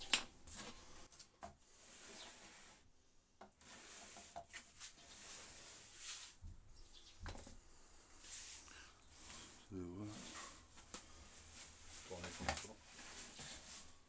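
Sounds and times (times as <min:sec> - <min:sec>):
hand rubbing wooden panel: 0:03.5 - 0:07.2, 0:08.2 - 0:14.0.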